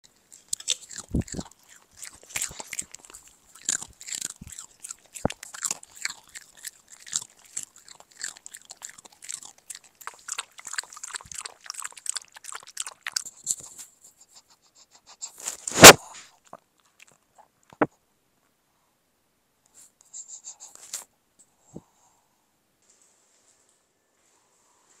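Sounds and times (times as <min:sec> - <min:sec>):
dog lapping water: 0:08.8 - 0:13.4.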